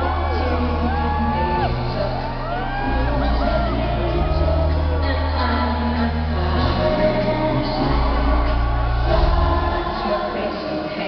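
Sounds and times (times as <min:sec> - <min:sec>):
fans shouting and whooping: 0:00.0 - 0:10.8
live pop music with bass beat: 0:00.0 - 0:11.0
person singing: 0:00.0 - 0:11.0.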